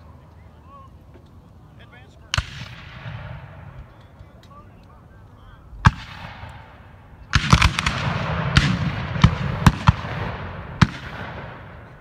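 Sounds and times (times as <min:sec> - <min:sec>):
musket shots: 0:02.3 - 0:03.8, 0:05.8 - 0:12.0.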